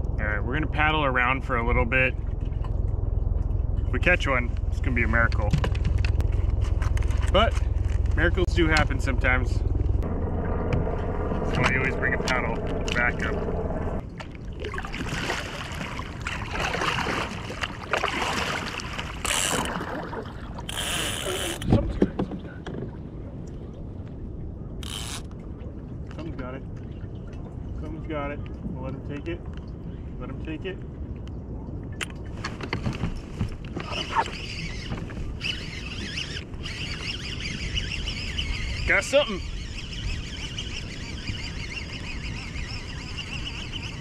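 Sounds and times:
paddle splashing in water: 14.0s - 23.0s
fishing reel clicker buzzing: 19.2s - 19.7s, 20.7s - 21.6s, 24.8s - 25.3s, 35.4s - 38.7s.

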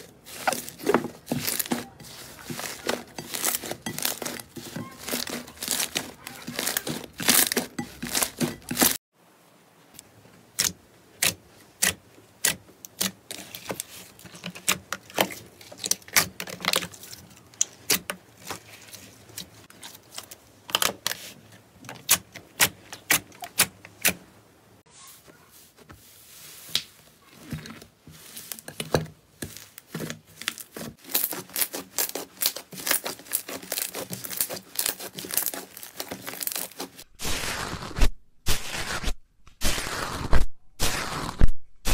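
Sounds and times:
slime popping and crackling: 29.5s - 41.9s.

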